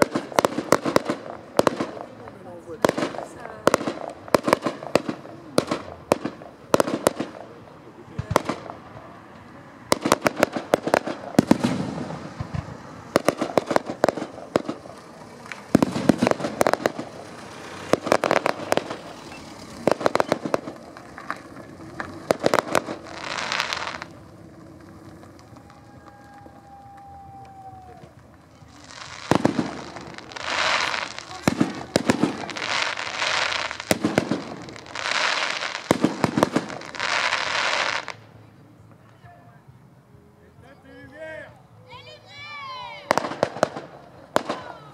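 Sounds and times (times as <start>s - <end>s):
fireworks bangs and crackles: 0.0s - 39.2s, 42.7s - 44.9s.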